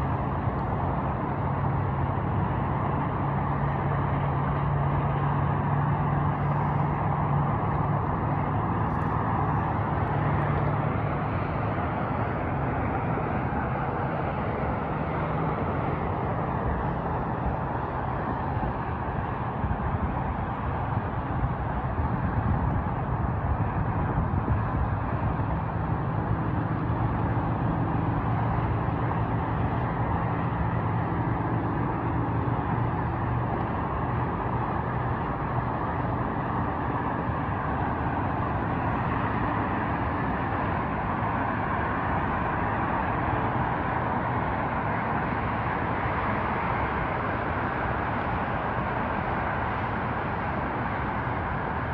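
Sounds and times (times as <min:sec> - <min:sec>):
distant freeway traffic hum: 0:00.0 - 0:51.9.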